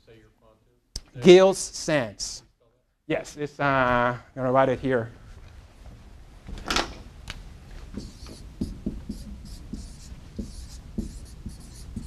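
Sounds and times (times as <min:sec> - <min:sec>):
marker scratching on whiteboard: 0:07.9 - 0:12.0.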